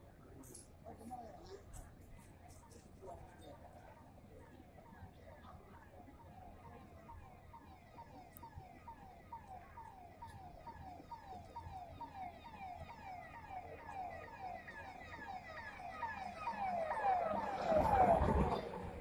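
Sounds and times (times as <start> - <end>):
vehicle siren: 6.2 - 19.0.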